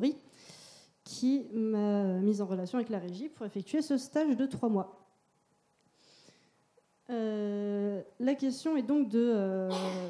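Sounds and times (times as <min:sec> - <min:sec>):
faint breath into microphone: 0:00.3 - 0:01.0.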